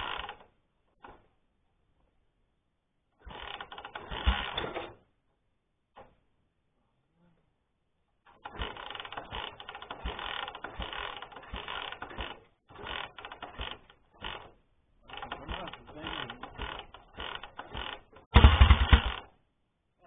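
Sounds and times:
kickstarter clanking: 8.3s - 19.3s
engine turning over knocks: 15.2s - 19.3s.

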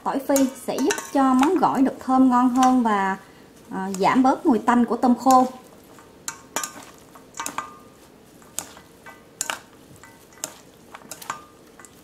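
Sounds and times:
utensils clinking on metal bowl: 0.2s - 2.9s, 5.1s - 12.0s.

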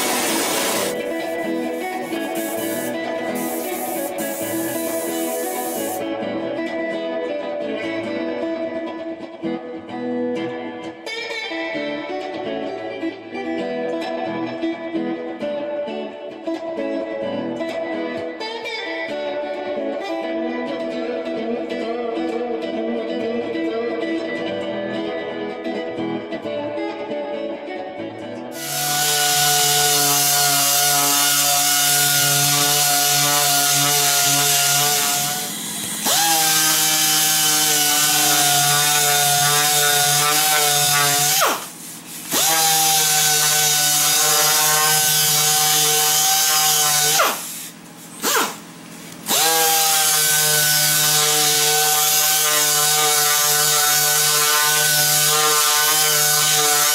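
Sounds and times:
electric power sander on wood: 0.0s - 6.0s, 28.6s - 56.9s
guitar music: 0.0s - 48.0s.

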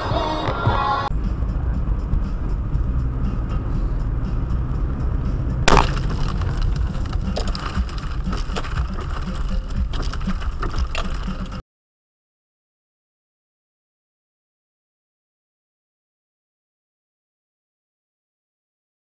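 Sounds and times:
car road and engine rumble: 0.0s - 11.6s
object cracking windshield: 5.7s - 11.6s.

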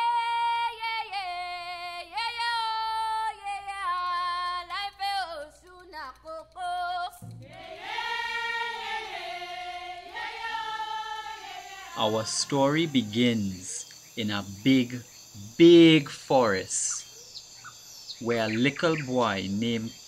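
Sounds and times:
person singing unaccompanied: 0.0s - 15.0s.

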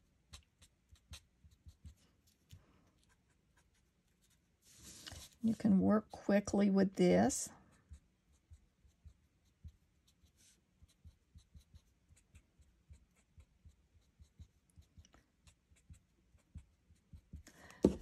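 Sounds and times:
marker tip scratching on card: 0.3s - 2.0s, 7.8s - 18.0s.

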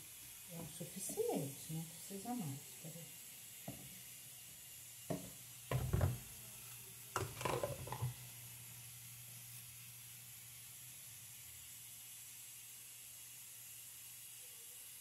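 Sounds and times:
plastic knocks and rustles: 5.1s - 6.2s, 7.2s - 8.1s.

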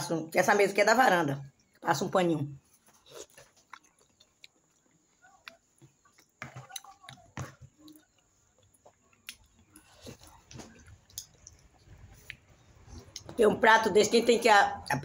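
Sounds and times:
person chewing: 2.6s - 13.4s.

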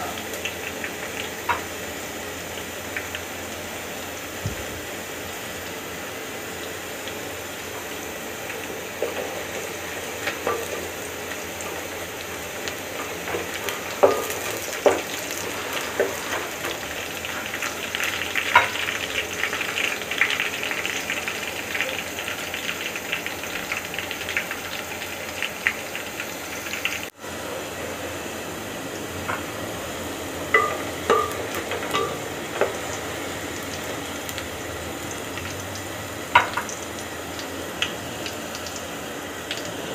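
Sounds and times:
onions sizzling in oil: 0.0s - 39.9s
spoon knocking against pot: 30.5s - 32.7s.

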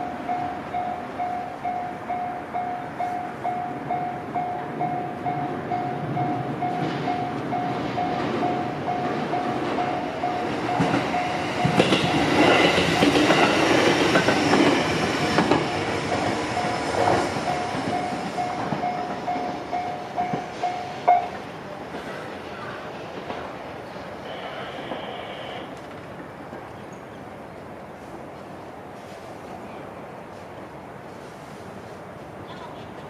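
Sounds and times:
train wheels clattering: 5.4s - 22.3s.

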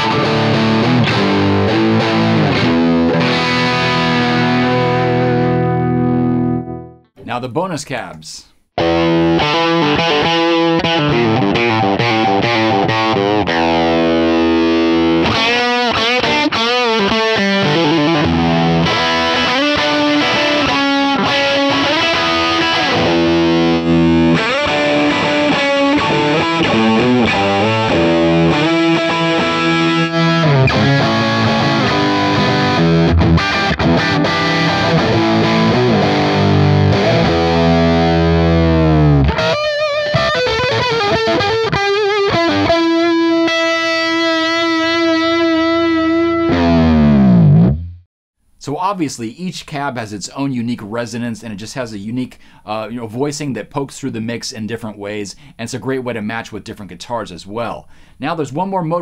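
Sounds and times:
overdriven electric guitar: 0.0s - 7.0s, 8.8s - 48.0s.

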